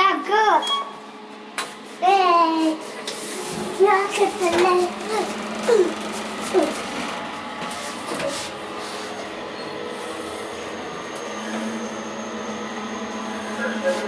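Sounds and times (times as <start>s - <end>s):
elevator car humming: 3.4s - 14.0s.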